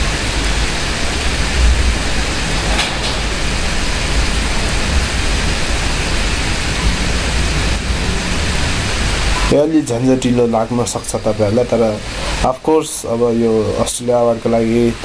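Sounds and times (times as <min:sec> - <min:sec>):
low rumble: 0:00.0 - 0:09.4
steady hiss: 0:00.0 - 0:15.0.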